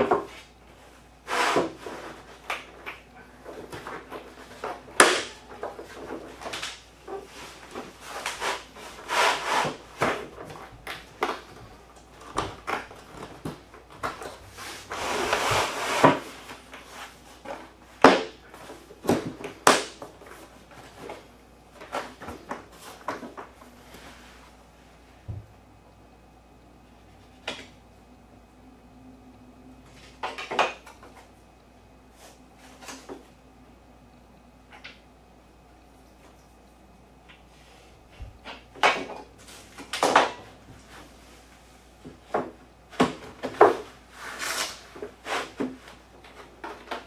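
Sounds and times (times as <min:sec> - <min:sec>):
sliding scrape: 0:01.2 - 0:02.3, 0:07.2 - 0:10.1, 0:14.5 - 0:17.4, 0:44.1 - 0:45.6.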